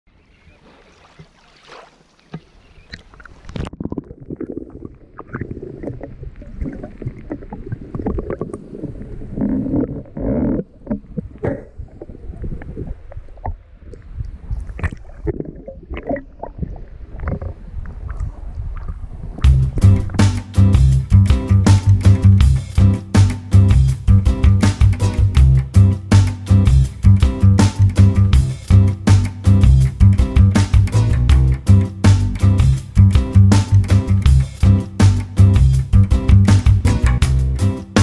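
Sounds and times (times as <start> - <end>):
seawater sloshing and gurgling: 0.3 - 19.5
water splashes and knocks: 0.5 - 3.8.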